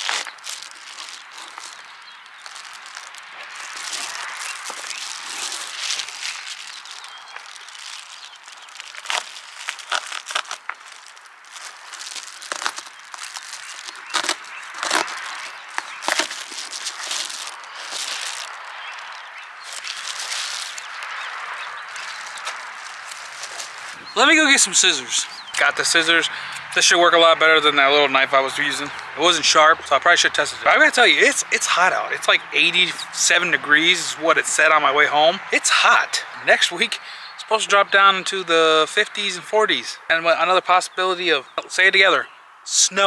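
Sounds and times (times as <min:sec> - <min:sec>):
foil insulation crinkling: 0:00.0 - 0:24.2.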